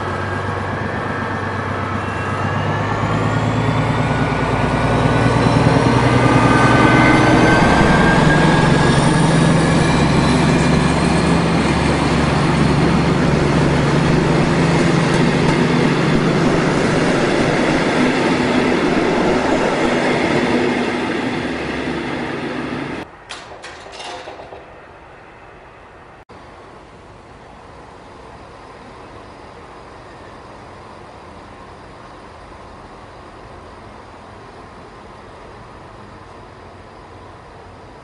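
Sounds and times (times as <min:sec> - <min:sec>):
train wheels rolling on rails: 0:00.0 - 0:26.2
locomotive engine humming: 0:00.0 - 0:38.0.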